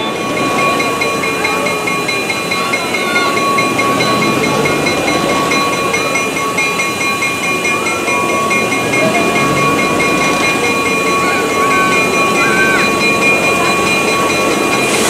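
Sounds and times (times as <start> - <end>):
diesel locomotive engine rumbling: 0.0 - 15.0
high-pitched tones: 0.0 - 15.0.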